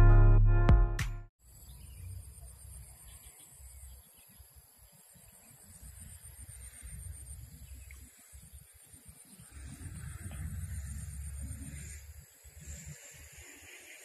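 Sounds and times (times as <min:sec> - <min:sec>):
pulsing insect trill: 0:01.5 - 0:14.0
wind rumble on microphone: 0:05.4 - 0:14.0.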